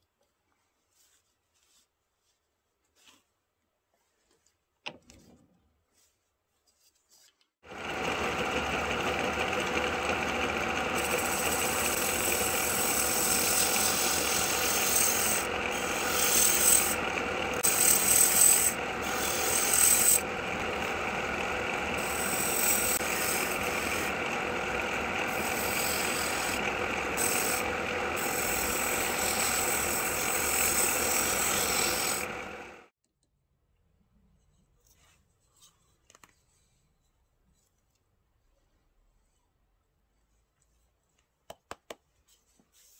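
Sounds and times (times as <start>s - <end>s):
turning tool scraping wood: 7.7s - 32.8s
lathe motor hum: 7.7s - 32.9s.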